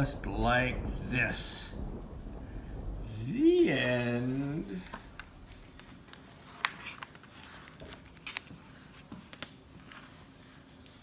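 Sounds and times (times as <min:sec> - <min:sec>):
book rustling: 0:05.5 - 0:11.0.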